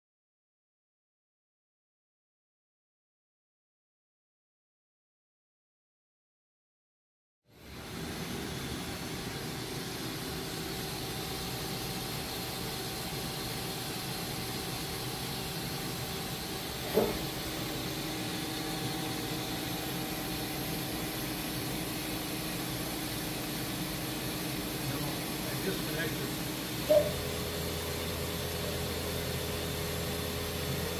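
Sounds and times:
milling machine hum and whine: 7.5s - 30.9s.

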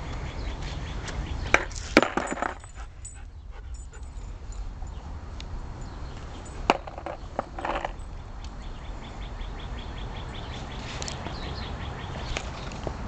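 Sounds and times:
skateboard clack: 1.5s - 2.6s, 6.7s - 8.0s
skateboard rolling on concrete: 1.5s - 2.6s, 6.2s - 8.0s.

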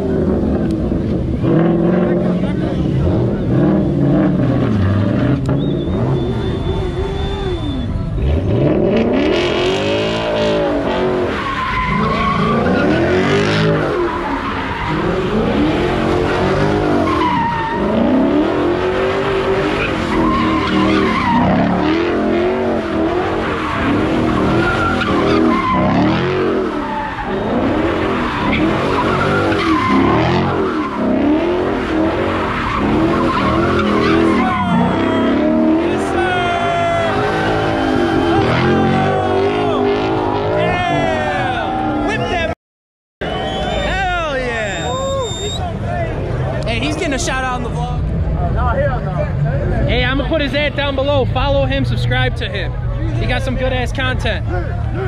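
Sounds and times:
car engine revving: 0.0s - 42.5s
tyres squealing on asphalt: 0.0s - 42.6s, 43.2s - 55.0s.

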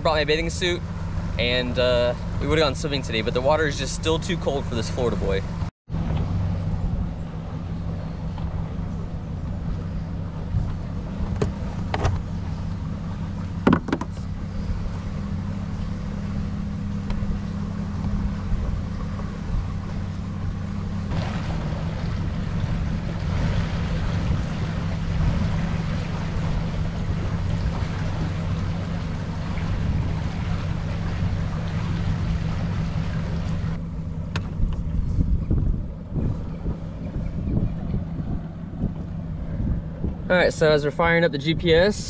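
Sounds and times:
outboard motor running: 0.0s - 42.0s
water and wind hiss: 0.0s - 42.0s
sharp knocks: 13.6s - 14.2s.

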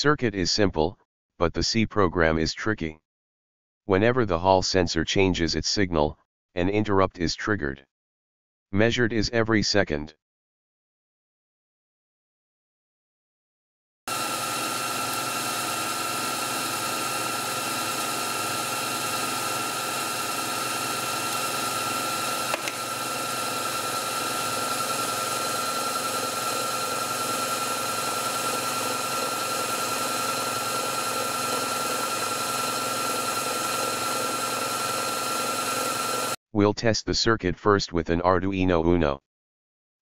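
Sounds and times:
lathe humming and whining: 14.1s - 36.4s.

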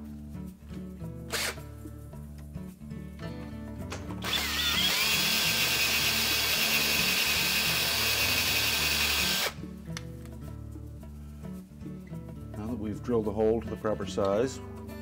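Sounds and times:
cordless drill drilling: 1.3s - 1.6s, 4.2s - 9.6s.

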